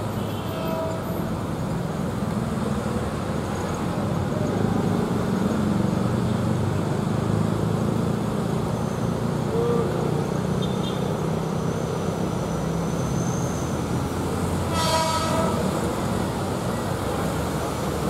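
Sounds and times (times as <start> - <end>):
train horn toot: 0.1 - 1.2, 14.7 - 15.9
train low rumble: 12.6 - 18.0.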